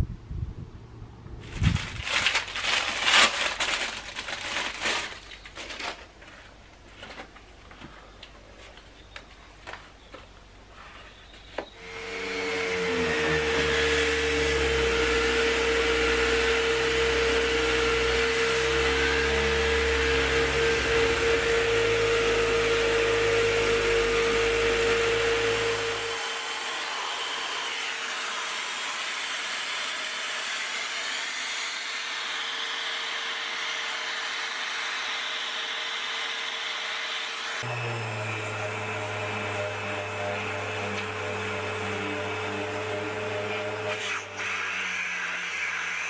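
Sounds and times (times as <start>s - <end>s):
orbital sander whining: 11.7s - 46.0s.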